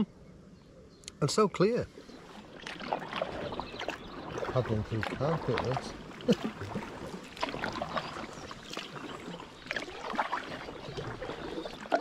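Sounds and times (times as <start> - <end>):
kayak paddle splashing: 1.9 - 12.0.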